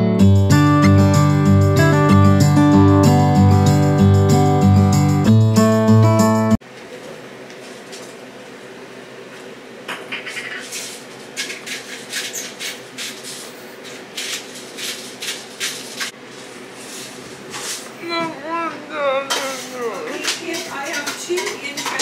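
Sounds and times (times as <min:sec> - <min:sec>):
kitchen knocks and clicks: 0:09.9 - 0:12.8, 0:19.3 - 0:22.0.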